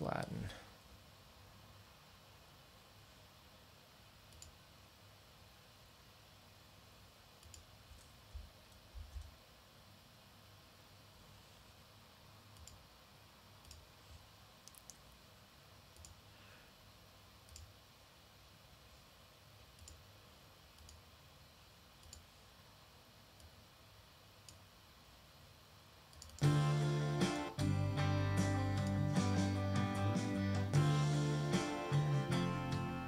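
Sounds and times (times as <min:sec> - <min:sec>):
computer mouse clicks: 0:04.3 - 0:04.6, 0:07.4 - 0:09.3, 0:12.5 - 0:12.8, 0:13.6 - 0:13.9, 0:14.6 - 0:15.1, 0:15.9 - 0:16.2, 0:17.4 - 0:17.8, 0:19.7 - 0:20.1, 0:20.7 - 0:21.0, 0:22.0 - 0:22.3, 0:24.4 - 0:24.7, 0:26.1 - 0:26.4.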